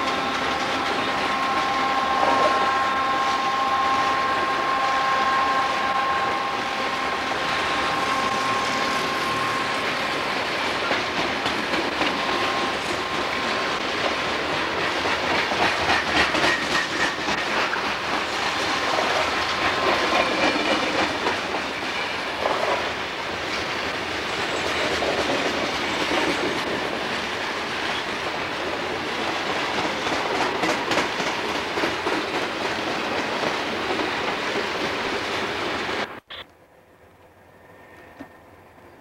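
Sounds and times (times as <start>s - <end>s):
train wheels rumbling on rail: 0.0s - 39.0s
wheels clacking over rail joints: 7.2s - 35.5s.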